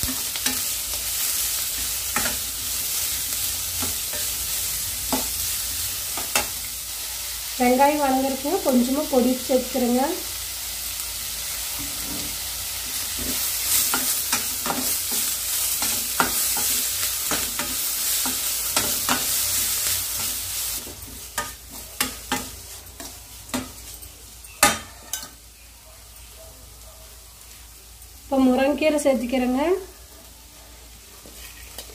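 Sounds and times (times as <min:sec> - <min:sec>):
onions sizzling in oil: 0:00.0 - 0:31.9
steel spatula scraping and clinking: 0:13.2 - 0:25.4, 0:31.4 - 0:31.9.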